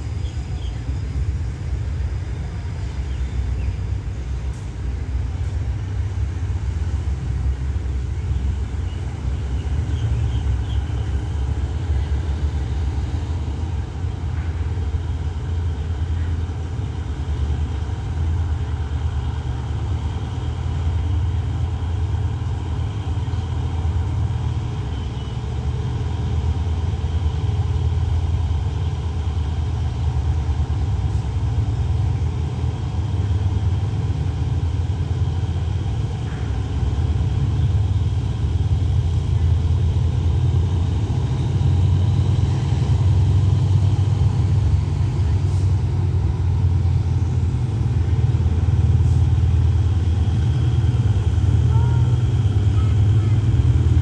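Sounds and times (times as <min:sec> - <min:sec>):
distant diesel locomotive rumble: 0:00.0 - 0:54.0.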